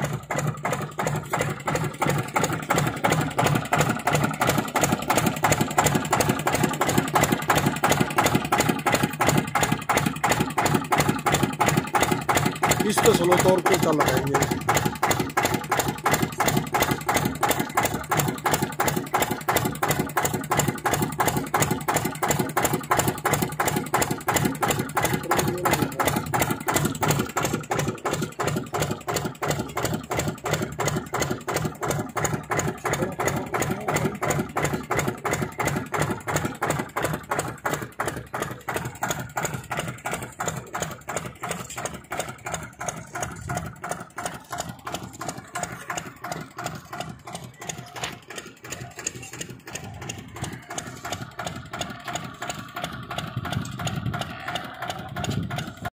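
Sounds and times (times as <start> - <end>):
diesel engine chugging: 0.0 - 55.9.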